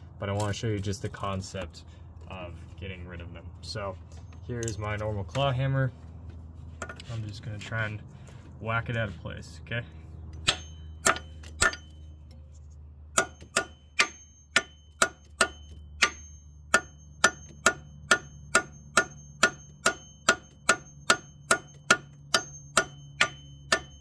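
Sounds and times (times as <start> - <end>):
hammer striking metal: 10.4 - 12.1, 13.1 - 24.0.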